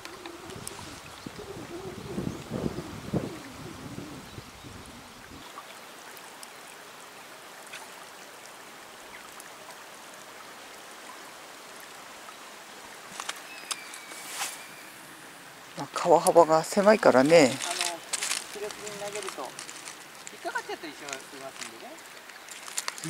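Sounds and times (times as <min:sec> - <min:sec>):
wind buffeting microphone: 0:00.0 - 0:05.5
river water rushing over rocks: 0:05.4 - 0:23.0.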